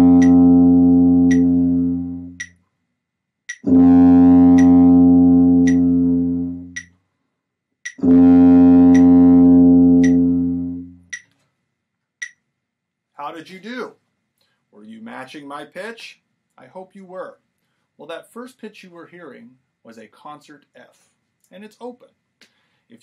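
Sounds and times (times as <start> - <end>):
tuba playing a low note: 0.0 - 2.4, 3.6 - 6.8, 8.0 - 11.1
metronome clicking: 0.2 - 0.4, 1.2 - 1.5, 2.3 - 2.6, 3.5 - 3.7, 4.5 - 4.8, 5.6 - 5.9, 6.7 - 7.0, 7.8 - 8.1, 8.9 - 9.2, 10.0 - 10.3, 11.1 - 11.4, 12.2 - 12.4.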